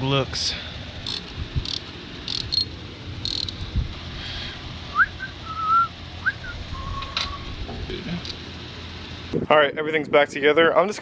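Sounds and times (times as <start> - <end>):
hand tools clicking: 1.0 - 2.7, 3.3 - 3.6
person whistling: 4.9 - 7.4.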